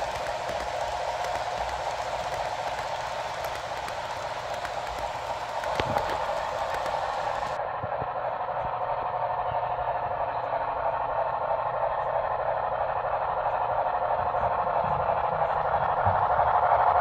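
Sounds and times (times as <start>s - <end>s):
model train running hiss: 0.0s - 7.6s.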